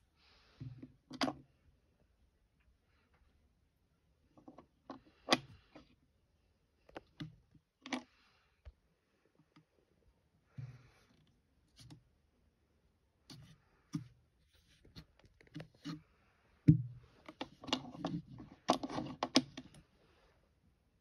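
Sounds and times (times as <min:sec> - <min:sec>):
handling clicks and scrapes: 0:13.2 - 0:16.1, 0:17.1 - 0:19.9.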